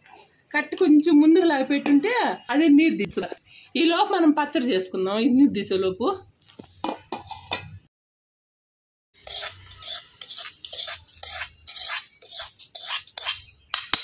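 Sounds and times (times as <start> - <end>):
spoon scraping steel pan: 6.8 - 7.8, 9.2 - 14.0.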